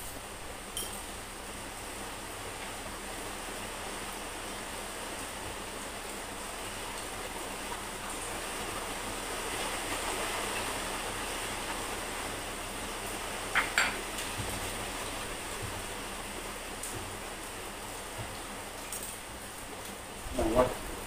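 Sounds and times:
steady background hiss: 0.0 - 21.0
cutlery clinking on ceramic bowl: 0.8 - 1.0, 13.6 - 14.0.

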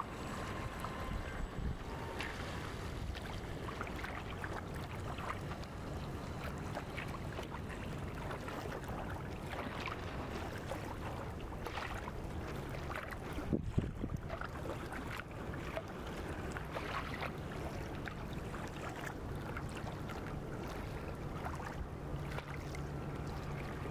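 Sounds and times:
low wind rumble: 0.0 - 8.2, 13.2 - 14.4
water lapping and splashing: 0.0 - 23.9.

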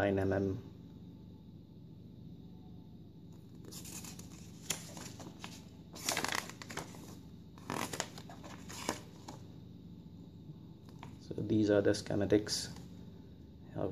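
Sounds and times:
paper rustling and crinkling: 3.5 - 9.4.

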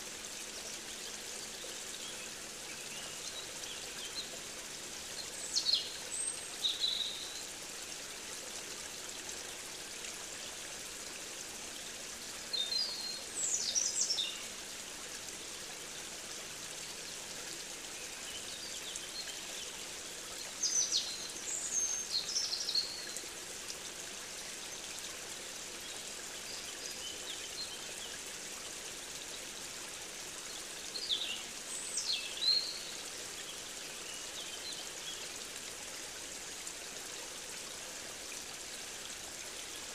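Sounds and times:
running water: 0.0 - 39.9
songbird singing: 20.6 - 23.2, 30.9 - 33.0.

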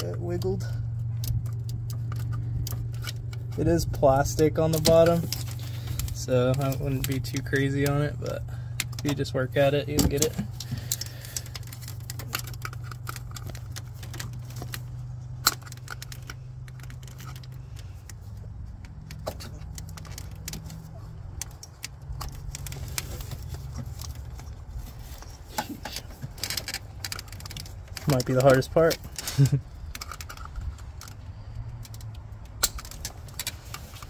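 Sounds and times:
pliers clicking and scraping: 0.0 - 34.0
steady low hum: 0.0 - 34.0.

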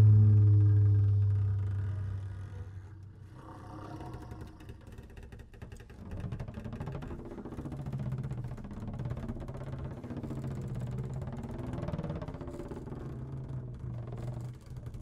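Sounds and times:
low double bass tones: 0.0 - 4.6.

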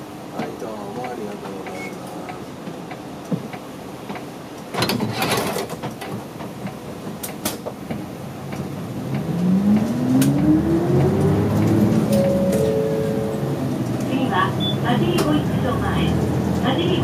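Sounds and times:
bus engine accelerating: 5.7 - 17.0.

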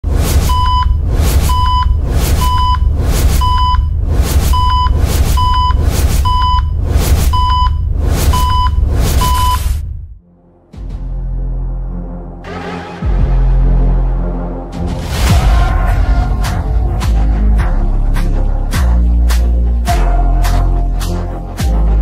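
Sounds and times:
deep bass rumble: 0.0 - 21.0
short high electronic beeps: 0.4 - 9.7.

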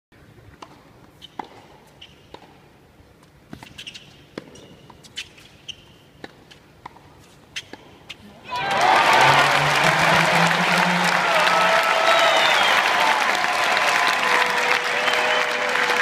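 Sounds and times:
hushed arena ambience: 0.2 - 16.0
shoe squeaks: 1.2 - 2.3, 3.5 - 6.6.

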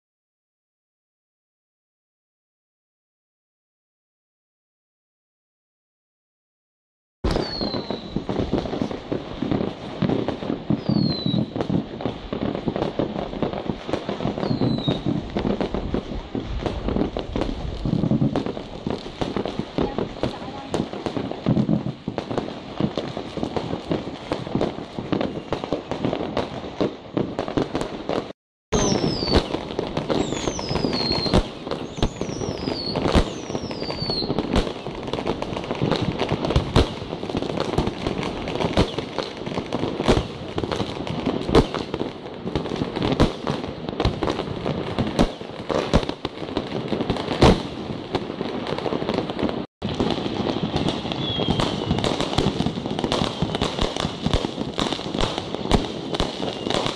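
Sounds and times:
falling firework whistles: 7.2 - 19.4, 22.8 - 37.8, 38.5 - 42.0, 45.0 - 46.2, 49.2 - 56.9
firework shells bursting: 7.2 - 26.6, 27.2 - 48.2
firecrackers crackling: 7.2 - 56.9.

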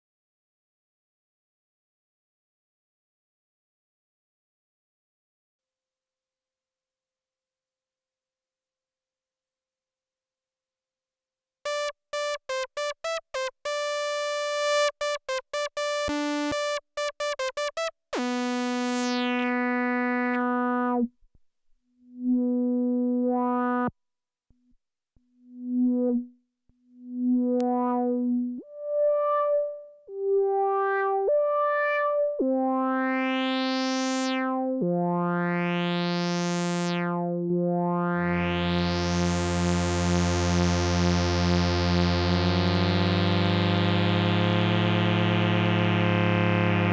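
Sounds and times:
analog synthesizer notes: 11.7 - 21.1, 22.1 - 24.0, 25.5 - 26.3, 27.0 - 46.9
low synthesizer tone: 22.1 - 23.9, 25.5 - 26.4, 27.0 - 46.9.

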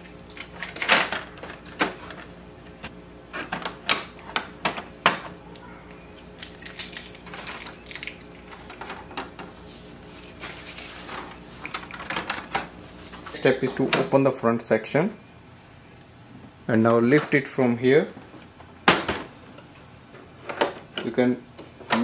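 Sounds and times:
soft scraping and rustling: 8.5 - 11.7.

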